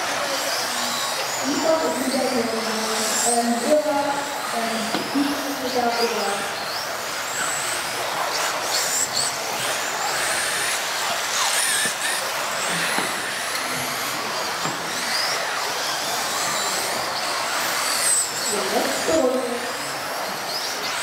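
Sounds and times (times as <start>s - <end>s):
model car motors whining: 0.0s - 21.0s.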